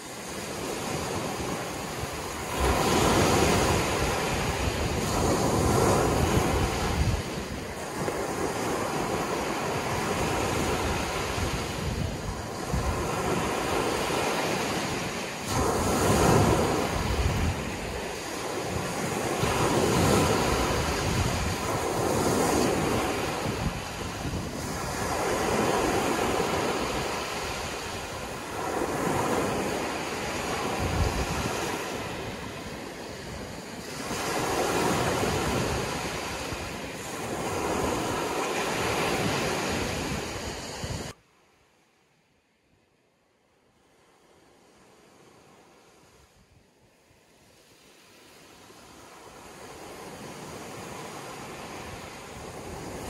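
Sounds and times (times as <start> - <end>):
wind rumbling on microphone: 0.0 - 41.2.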